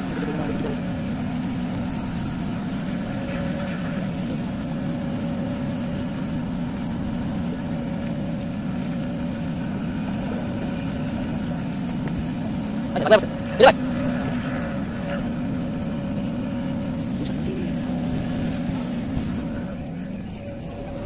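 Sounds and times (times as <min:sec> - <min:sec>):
vehicle engine drone: 0:00.0 - 0:21.0.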